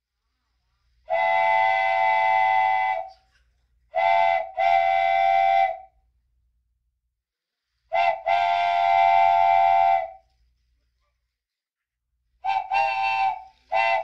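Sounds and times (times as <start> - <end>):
toy train horn blasts: 1.1 - 3.2, 4.0 - 5.9, 7.9 - 10.2, 12.4 - 14.0.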